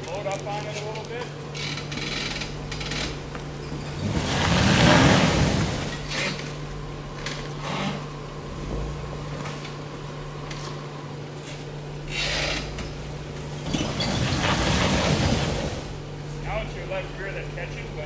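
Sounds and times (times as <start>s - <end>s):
low engine hum: 0.0s - 18.0s
scraping and crunching on rocks: 3.0s - 6.6s.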